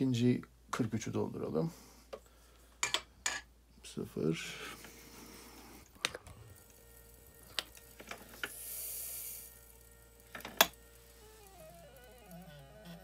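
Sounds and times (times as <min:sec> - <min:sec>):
gunpowder pouring hiss: 0:06.6 - 0:12.4.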